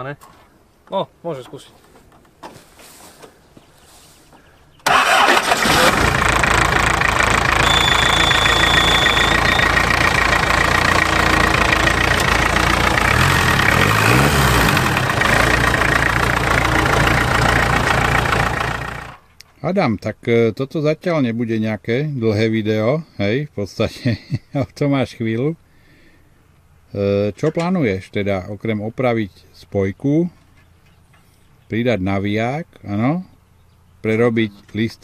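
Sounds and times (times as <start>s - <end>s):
diesel engine starting and running: 4.8s - 19.3s.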